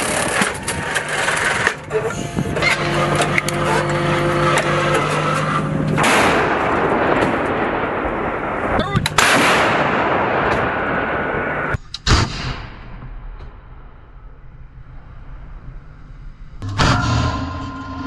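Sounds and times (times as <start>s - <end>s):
vehicle engine humming: 0.0s - 9.2s, 13.4s - 18.0s
heavy gun blast with rolling rumble: 5.6s - 14.4s.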